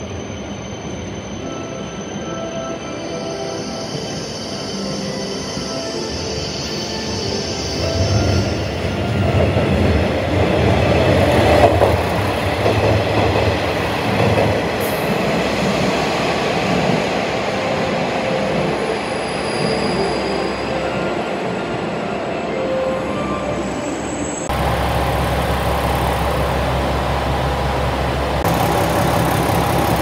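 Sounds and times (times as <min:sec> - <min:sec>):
train wheels rumbling: 0:07.9 - 0:18.0, 0:24.4 - 0:30.0
high wheel squeal: 0:18.8 - 0:21.0.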